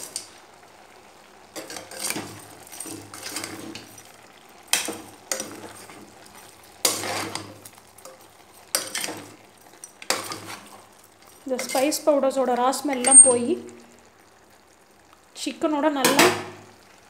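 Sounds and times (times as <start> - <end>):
metal spoon scraping a pot: 1.6 - 4.1, 4.7 - 12.1
spoon clanking on pot rim: 12.9 - 13.5.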